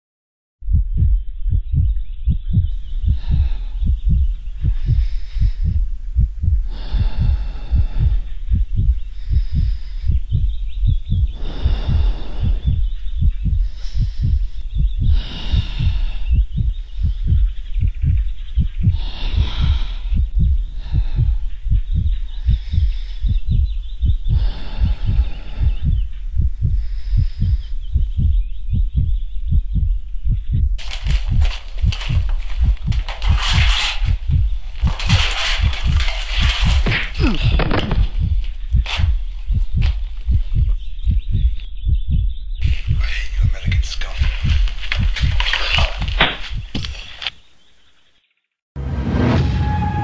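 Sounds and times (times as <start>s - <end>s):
fast low thumping: 0.6s - 47.1s
warbling high tone: 49.2s - 50.0s.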